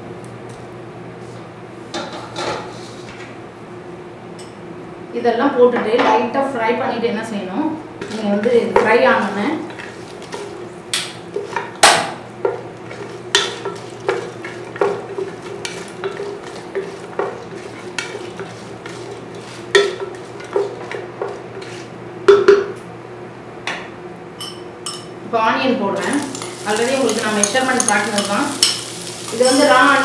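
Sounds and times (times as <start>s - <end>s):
oil sizzling: 8.0s - 21.4s, 26.0s - 30.0s
spatula knocking and scraping pan: 8.0s - 22.6s, 26.0s - 30.0s.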